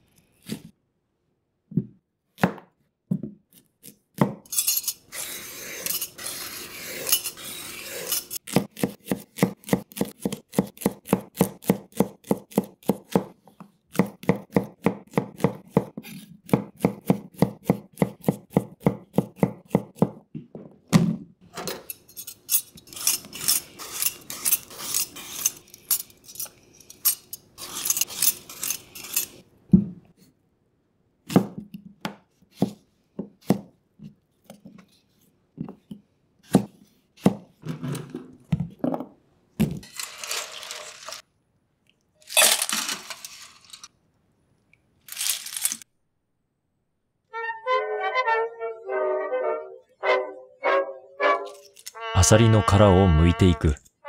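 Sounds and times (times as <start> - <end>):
knife cutting carrot on board: 5.2 - 20.2.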